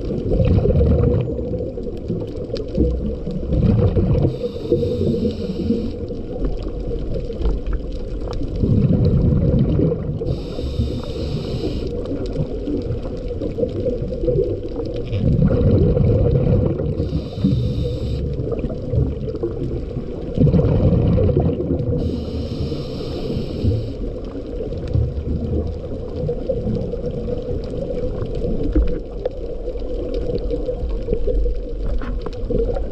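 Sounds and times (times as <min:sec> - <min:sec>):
bubbling exhaled air: 0:00.0 - 0:07.0, 0:07.6 - 0:29.2
low underwater rumble: 0:00.0 - 0:32.9
inhalation hiss: 0:04.2 - 0:06.1, 0:10.2 - 0:12.0, 0:17.0 - 0:18.3, 0:22.0 - 0:24.2
scuba regulator breathing: 0:04.2 - 0:06.2, 0:10.2 - 0:12.1, 0:16.9 - 0:18.6, 0:22.0 - 0:24.2.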